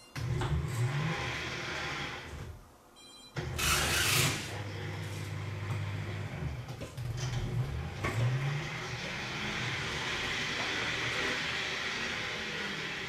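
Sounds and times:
electric motors humming: 0:03.4 - 0:13.0.

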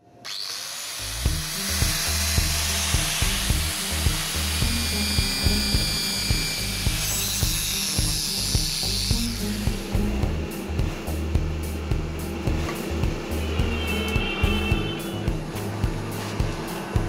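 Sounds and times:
angle grinder cutting steel: 0:00.2 - 0:10.8
background music with steady beat: 0:01.0 - 0:17.0.

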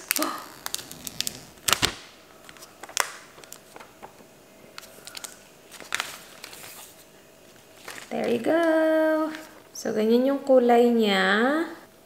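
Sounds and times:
plastic film tearing and crinkling: 0:00.0 - 0:04.2, 0:04.8 - 0:09.7.

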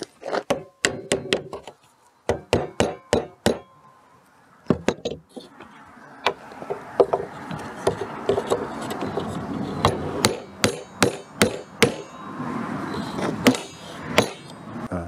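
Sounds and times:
hammer knocking on wood: 0:02.3 - 0:03.6.

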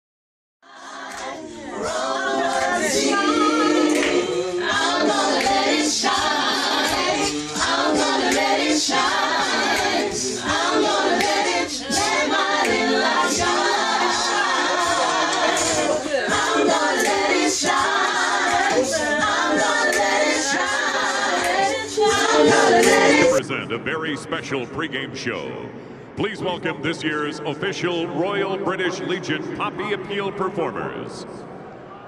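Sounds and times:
choir singing a cappella: 0:00.6 - 0:23.4.

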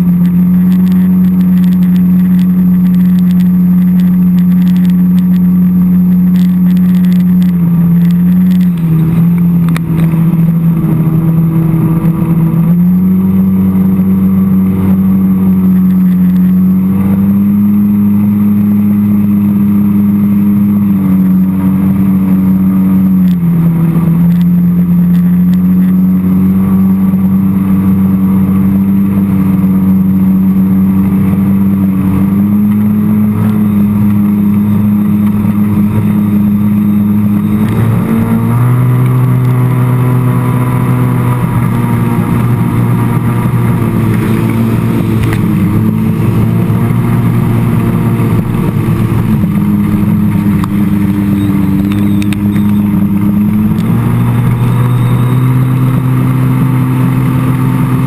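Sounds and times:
jet ski engine running hard: 0:00.0 - 0:58.0
wind: 0:00.0 - 0:58.0
rushing water: 0:27.4 - 0:58.0.

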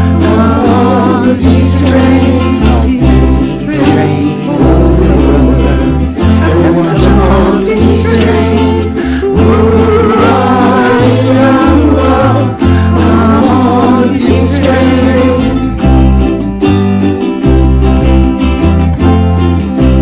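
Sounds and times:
group singing in unison: 0:00.0 - 0:15.8
ukuleles and guitar strumming: 0:00.0 - 0:20.0.

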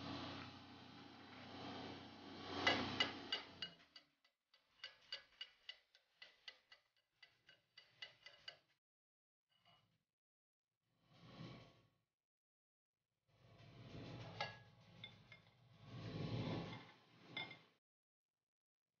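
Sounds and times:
hammer ticking on metal: 0:02.6 - 0:08.7.

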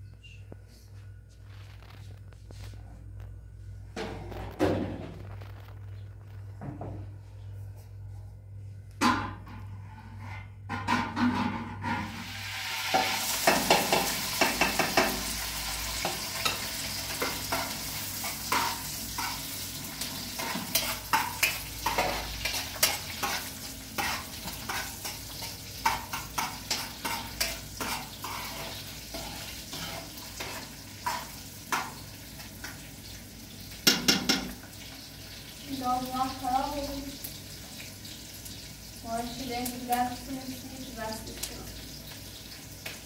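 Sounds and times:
utensil scraping a pan: 0:09.4 - 0:15.4, 0:16.0 - 0:32.8
food sizzling in a pan: 0:11.8 - 0:43.0.

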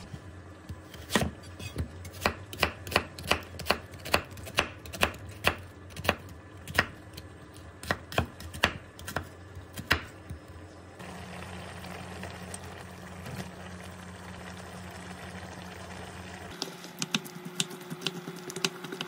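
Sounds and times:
knife chopping on wooden board: 0:00.9 - 0:07.0.

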